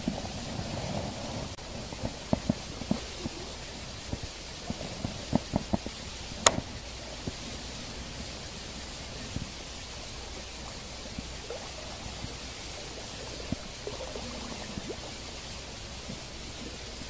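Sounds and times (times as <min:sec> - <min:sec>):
steady hiss: 0:00.0 - 0:17.0
fishing reel knocks and taps: 0:06.4 - 0:06.7.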